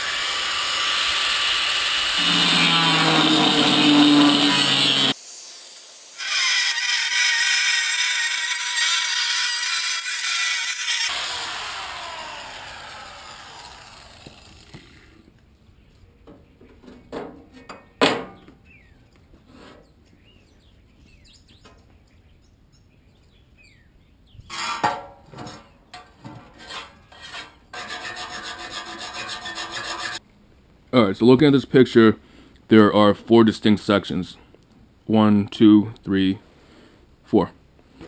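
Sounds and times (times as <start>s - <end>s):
electric cutting tool winding down: 0.0s - 5.2s, 9.7s - 15.1s
rasping metal scrape: 2.2s - 5.2s, 24.5s - 30.2s.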